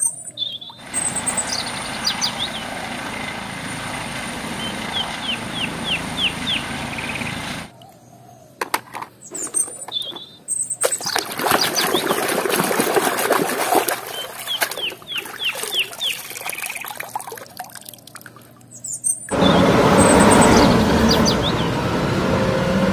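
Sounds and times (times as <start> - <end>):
bird chirping: 0.0 - 3.4, 4.6 - 12.3, 14.0 - 17.1, 18.7 - 21.8
helicopter rotor and engine: 0.8 - 7.7, 19.3 - 22.9
water splashing and dripping: 10.8 - 18.8.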